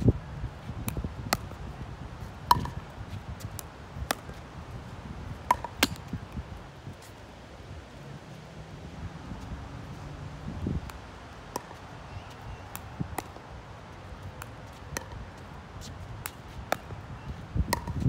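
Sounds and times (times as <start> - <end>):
wind rumble on microphone: 0.0 - 18.0
plastic ball popping off paddles: 2.5 - 2.8, 5.5 - 6.0.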